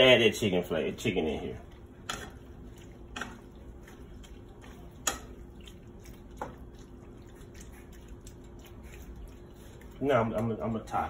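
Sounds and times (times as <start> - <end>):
faint steady hum: 0.0 - 11.0
utensil clicking against pan: 5.0 - 5.4.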